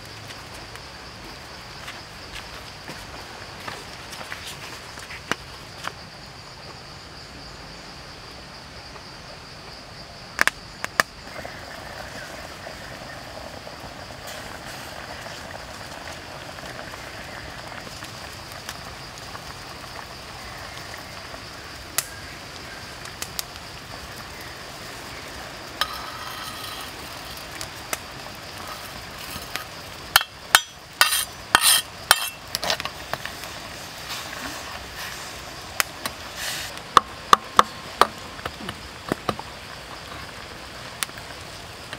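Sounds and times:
soup simmering hiss: 10.8 - 41.9.

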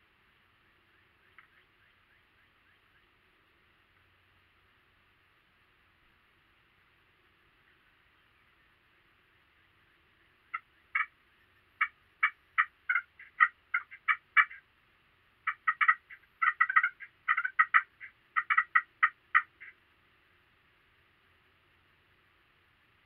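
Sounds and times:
turkey clucking: 10.5 - 14.7, 15.4 - 19.8.

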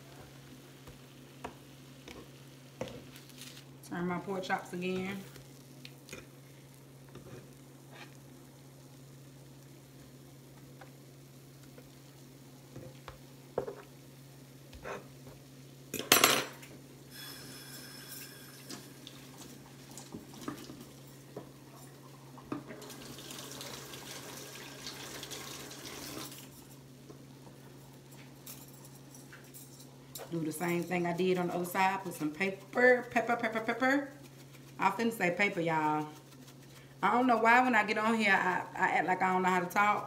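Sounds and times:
utensils and dishes clinking: 16.0 - 19.0.

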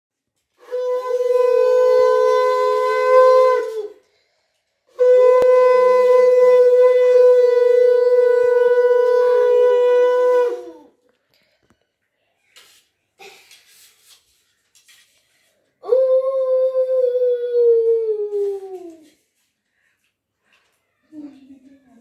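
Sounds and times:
conch shell blasts: 0.6 - 4.0, 4.9 - 10.6.

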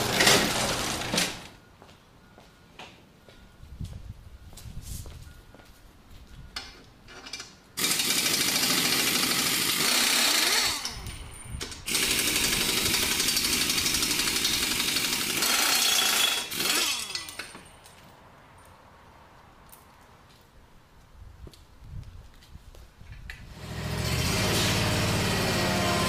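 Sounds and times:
pneumatic air drill whining: 7.8 - 17.6, 23.5 - 26.0.

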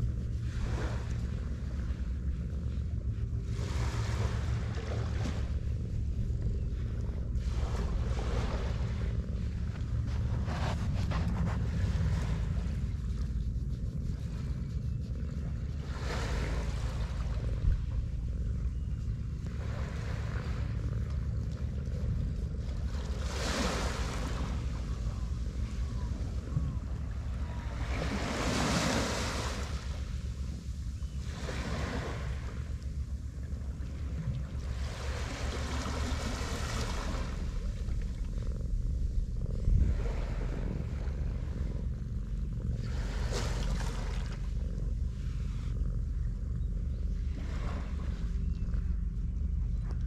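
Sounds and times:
cat purring: 0.0 - 50.0
surf: 0.0 - 50.0
wind on microphone: 0.0 - 50.0
small waves washing onto sand: 15.5 - 17.9, 22.6 - 24.9, 27.3 - 30.0, 33.8 - 37.8.

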